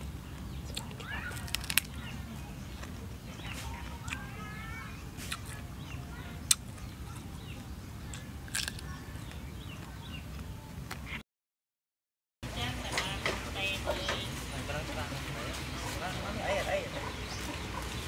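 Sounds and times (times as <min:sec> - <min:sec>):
birds chirping: 0:00.0 - 0:11.2, 0:12.4 - 0:18.0
person biting and chewing: 0:00.7 - 0:02.0, 0:04.0 - 0:04.3, 0:05.2 - 0:05.6, 0:06.4 - 0:07.3, 0:08.1 - 0:09.0.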